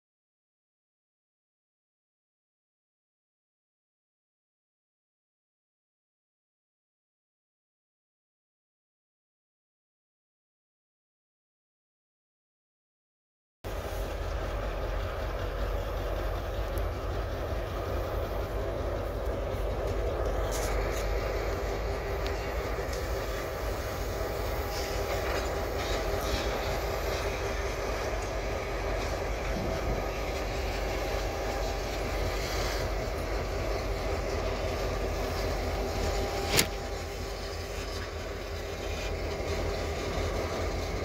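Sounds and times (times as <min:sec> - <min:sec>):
diesel locomotive engine hum: 0:13.6 - 0:41.0
flatcars rolling on rails: 0:13.7 - 0:41.0.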